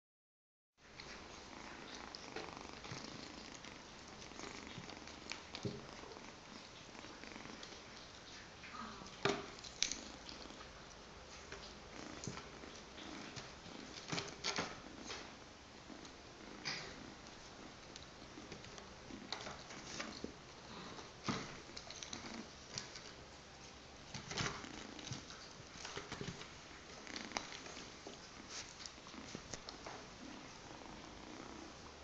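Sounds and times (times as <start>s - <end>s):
kitten purring: 0.8s - 32.0s.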